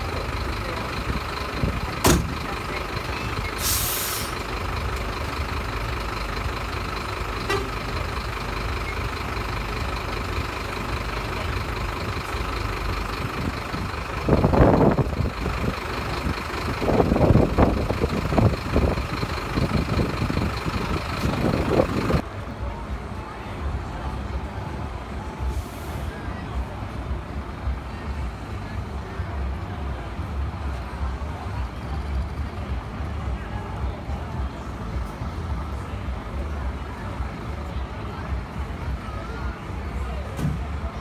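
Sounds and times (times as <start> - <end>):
diesel engine idling: 0.0 - 41.0
short hiss: 3.6 - 4.4.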